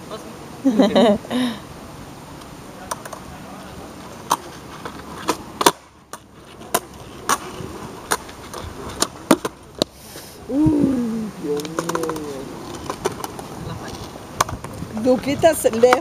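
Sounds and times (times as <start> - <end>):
skateboard clacking: 2.8 - 3.3, 4.0 - 10.0, 11.6 - 16.0
person exclaiming: 10.5 - 12.5.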